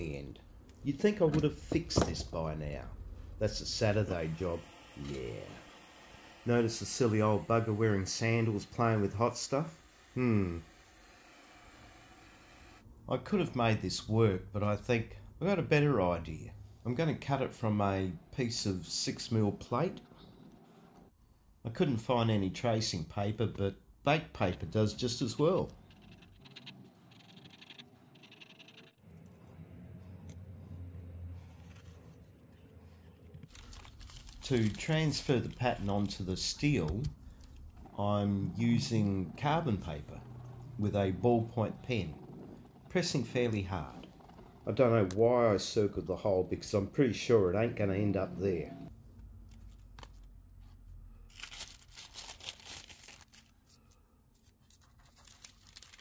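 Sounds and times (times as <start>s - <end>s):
pen scratching on paper: 25.7s - 29.0s
dry paper rustle: 33.5s - 36.2s, 51.3s - 56.0s.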